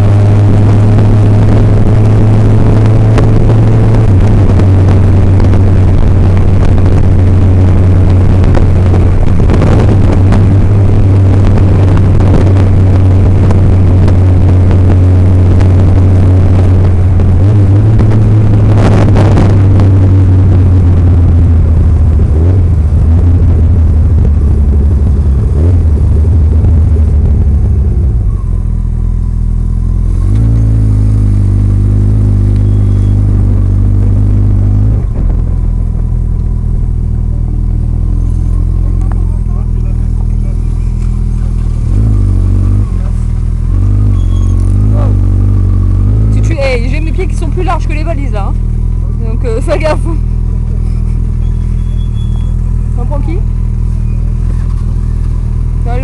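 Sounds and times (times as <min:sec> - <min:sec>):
wind rushing over microphone: 0:00.0 - 0:28.8, 0:30.4 - 0:38.4
motorcycle engine running: 0:00.0 - 0:56.0.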